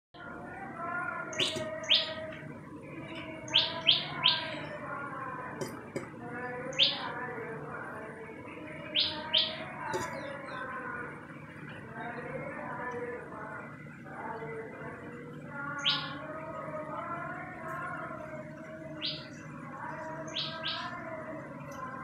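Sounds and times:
background bird chatter: 0:00.2 - 0:22.0.

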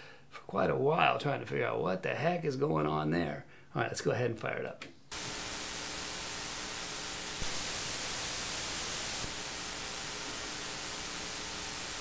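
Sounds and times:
low mains hum buzz: 0:05.1 - 0:12.0
steady hiss: 0:05.1 - 0:12.0.

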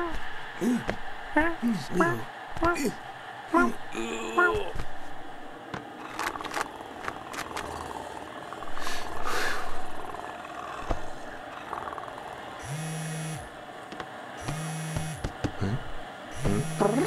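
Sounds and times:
cat purring: 0:06.0 - 0:12.4.

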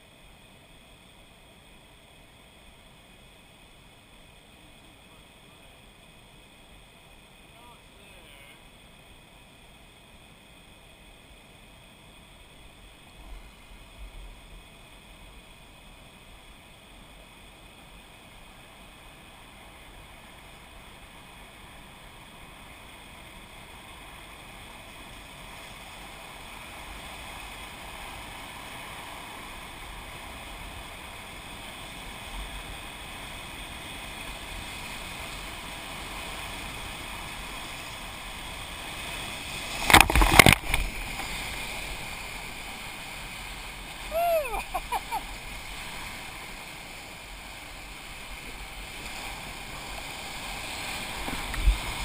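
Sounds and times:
whitewater rapid roaring: 0:26.0 - 0:52.0
waves crashing over boat: 0:31.4 - 0:52.0.

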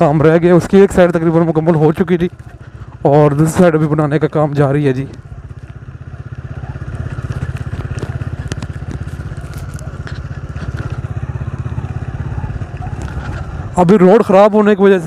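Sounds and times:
vehicle engine running: 0:00.0 - 0:15.0
scattered clicks: 0:06.8 - 0:11.9.

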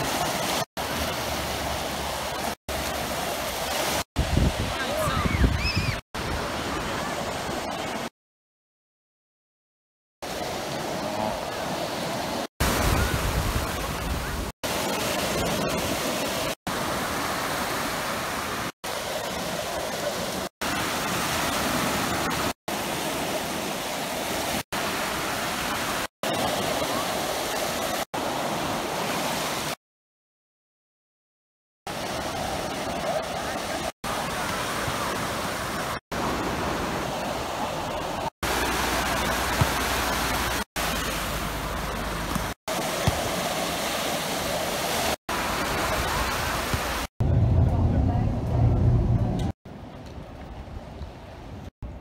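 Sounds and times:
sea surf on a beach: 0:00.0 - 0:08.1, 0:10.2 - 0:29.8, 0:31.9 - 0:52.0.

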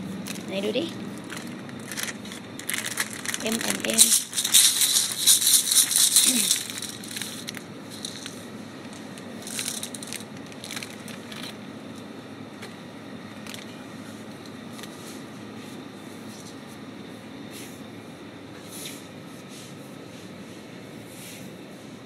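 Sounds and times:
plastic packaging crinkling: 0:01.1 - 0:11.6, 0:13.4 - 0:13.8.

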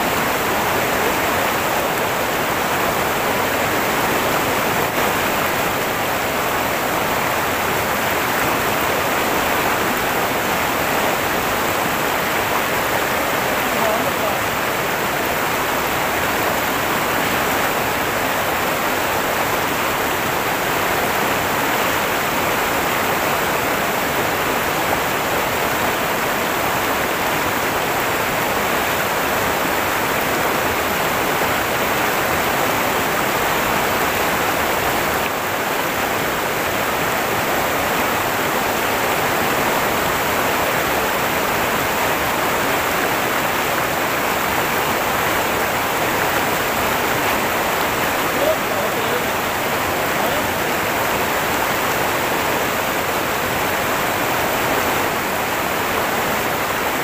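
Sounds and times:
stream rapids rushing over rocks: 0:00.0 - 0:57.0.

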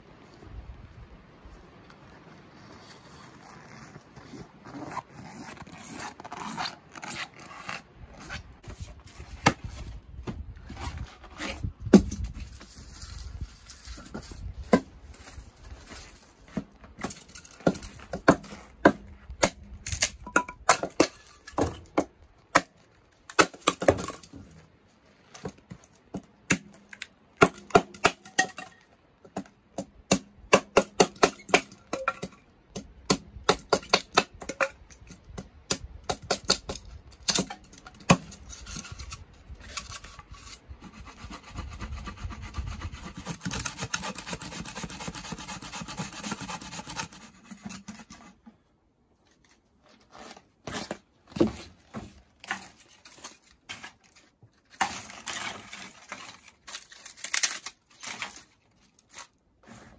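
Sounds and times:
hatchet splitting firewood: 0:08.6 - 0:24.6, 0:25.3 - 0:48.5, 0:50.0 - 0:59.9
blade scraping wood: 0:37.3 - 0:48.6, 0:49.4 - 0:59.9.

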